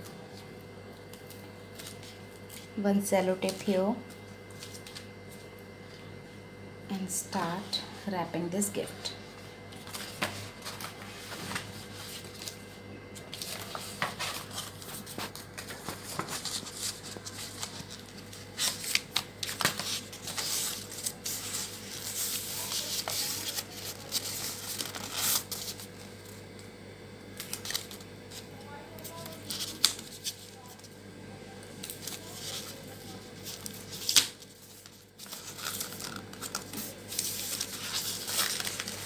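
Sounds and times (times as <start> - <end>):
gift paper rustling and crackling: 9.7 - 26.4, 27.4 - 30.9, 31.7 - 39.0.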